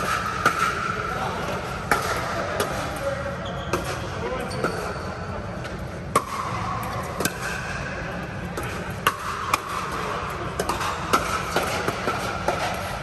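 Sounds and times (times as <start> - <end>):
steady background hum: 0.0 - 13.0
paddles hitting plastic ball: 8.5 - 13.0.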